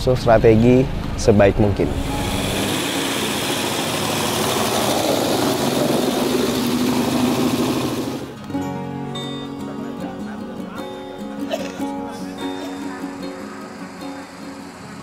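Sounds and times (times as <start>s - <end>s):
buggy engine running: 0.8s - 8.4s, 12.6s - 15.0s
music: 8.3s - 15.0s.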